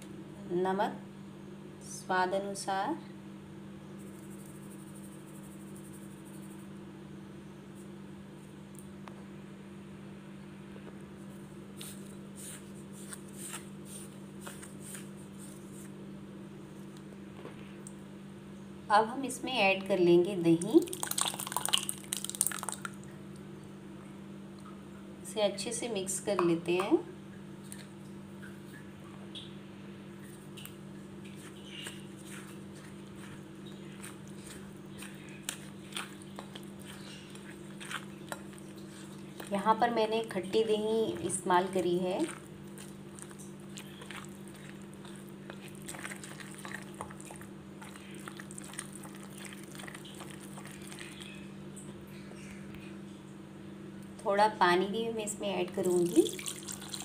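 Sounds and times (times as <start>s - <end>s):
steady low hum: 0.0s - 57.0s
wet batter squishing: 11.7s - 16.0s, 20.5s - 23.1s, 30.2s - 51.5s, 55.7s - 57.0s.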